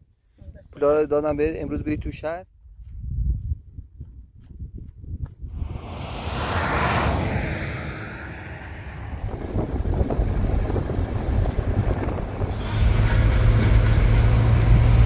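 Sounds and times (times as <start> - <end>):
car engine and road noise: 5.5 - 15.0.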